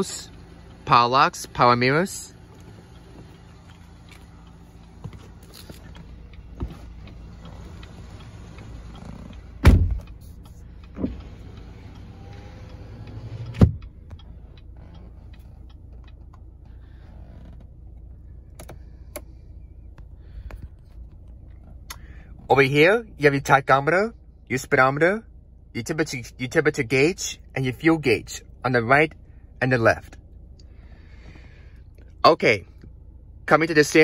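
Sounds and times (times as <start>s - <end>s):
car engine idling hum: 0.0s - 34.0s
power window motor: 2.4s - 18.8s
heavy thumps: 9.0s - 10.2s.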